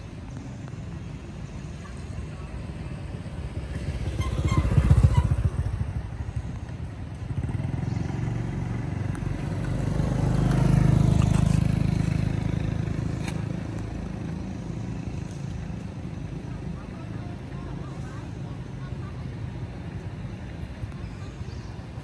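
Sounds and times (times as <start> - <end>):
vehicles passing by: 0.0 - 22.0.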